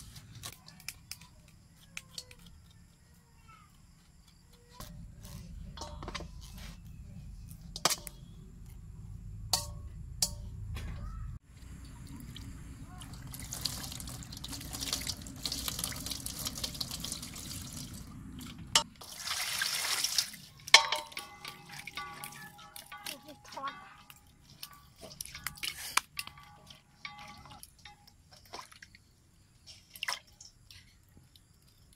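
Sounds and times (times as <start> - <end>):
water pouring into metal basin: 12.2 - 23.1.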